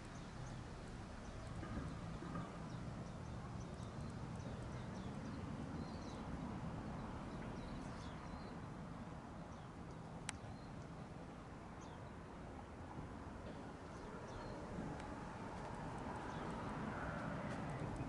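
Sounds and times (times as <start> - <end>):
footsteps outdoors: 13.0 - 18.0.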